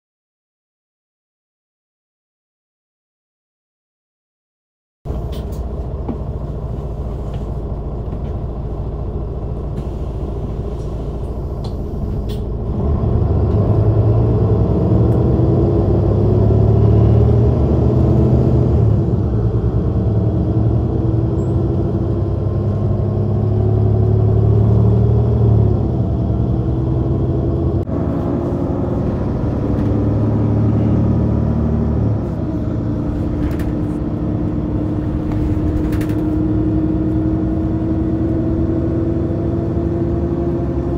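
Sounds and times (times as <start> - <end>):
bus diesel engine: 5.1 - 40.9
gearbox shifting up: 32.2 - 38.2.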